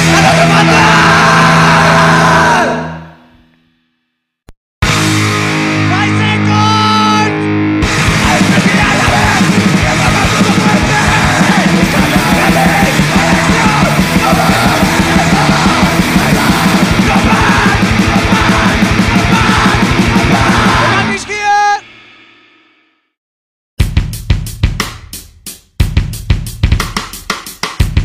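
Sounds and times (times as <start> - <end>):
fast driving drums: 0.0 - 2.4, 7.8 - 22.6, 23.8 - 28.0
screamed vocals: 0.0 - 3.2, 8.1 - 21.9
distorted guitars: 0.0 - 3.6, 4.8 - 22.8.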